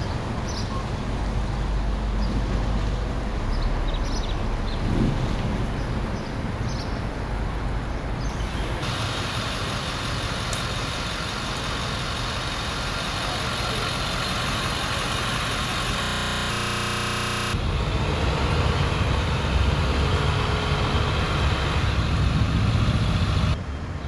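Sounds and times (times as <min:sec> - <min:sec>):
street traffic: 0:00.0 - 0:24.0
truck engines running: 0:00.0 - 0:24.0
buzzing engine idle: 0:08.4 - 0:23.6.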